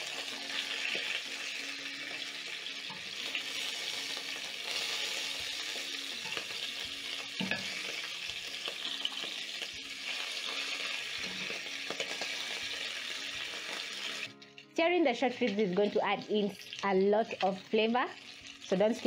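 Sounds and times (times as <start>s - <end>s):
meat sizzling in hot oil: 0.0s - 19.0s.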